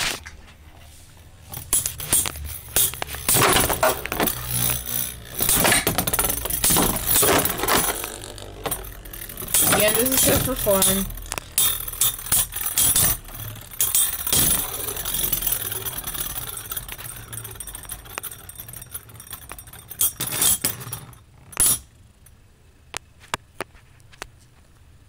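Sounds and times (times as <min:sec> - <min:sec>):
spinning tops whirring: 0:01.4 - 0:22.0.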